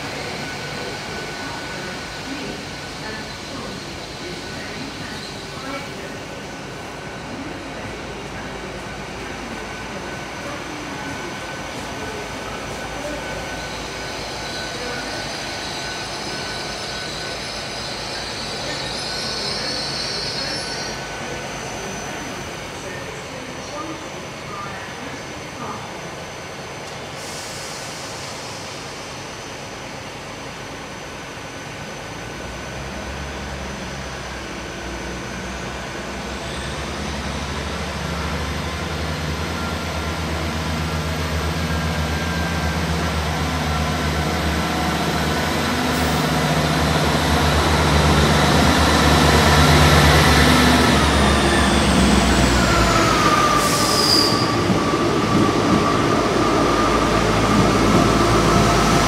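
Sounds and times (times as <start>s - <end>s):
train engine rumble: 0.0s - 59.0s
train wheel noise: 32.1s - 59.0s.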